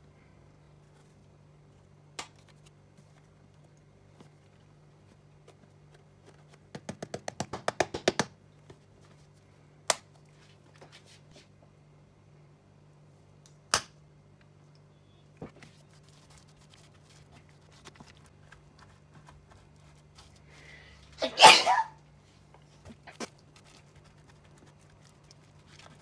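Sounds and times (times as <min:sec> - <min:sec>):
person sneezing: 0:21.2 - 0:22.0.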